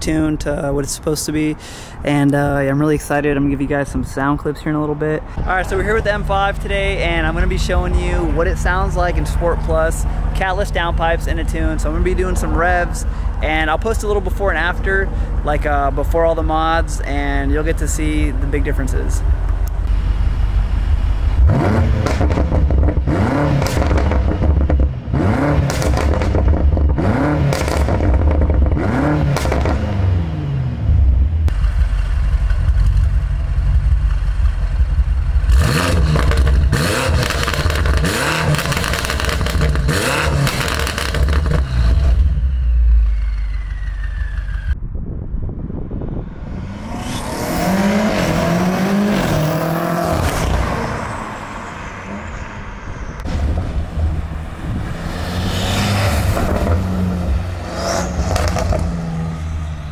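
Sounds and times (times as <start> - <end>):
car engine revving: 5.5 - 44.8, 45.9 - 59.9
exhaust pops and crackles: 22.0 - 24.9, 25.6 - 29.8, 31.5 - 42.2, 58.3 - 58.9
car engine idling: 31.0 - 44.5.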